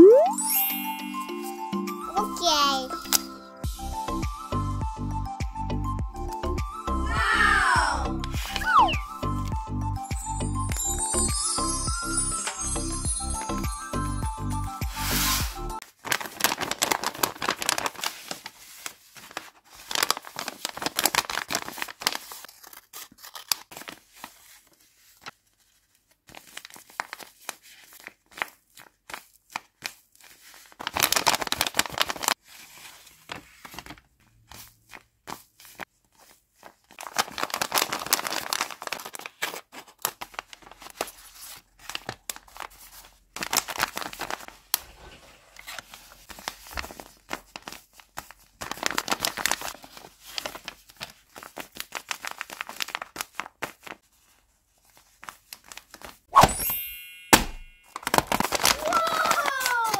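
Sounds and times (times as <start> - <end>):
paper rustling: 14.8 - 56.5, 57.8 - 59.9
paper and tape crinkling and tearing: 14.8 - 56.6, 57.9 - 59.9.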